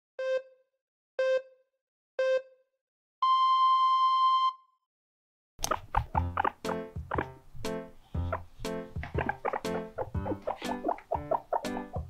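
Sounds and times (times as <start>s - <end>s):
electronic countdown beeps: 0.2s - 4.7s.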